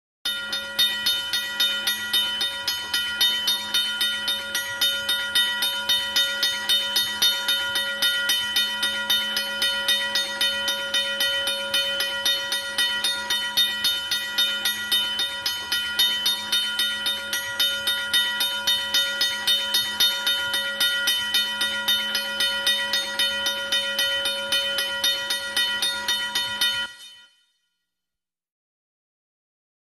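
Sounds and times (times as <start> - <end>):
railroad crossing bell ringing: 0.3 - 27.4.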